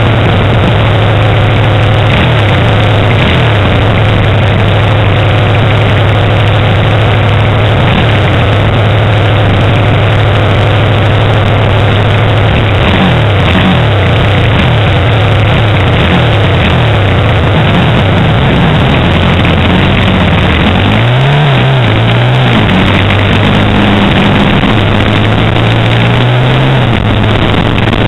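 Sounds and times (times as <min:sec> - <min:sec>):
small motorcycle engine running: 0:00.0 - 0:28.0.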